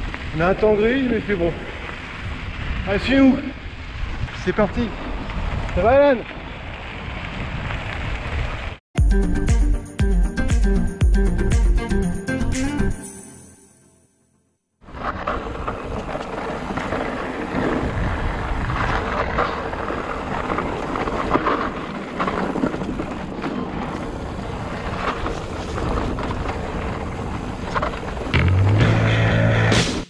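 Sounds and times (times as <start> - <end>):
bike rattling over bumps: 0.0 - 8.8, 14.8 - 29.7
bike tyres crunching over gravel: 0.0 - 8.8, 14.8 - 29.7
wind buffeting microphone: 0.0 - 8.8, 14.9 - 28.4
music: 9.0 - 14.5, 28.4 - 30.0.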